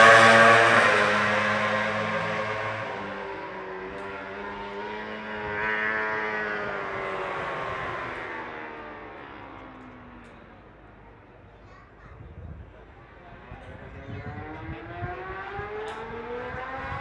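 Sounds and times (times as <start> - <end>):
racing motorcycles passing: 0.0 - 11.2, 13.4 - 17.0.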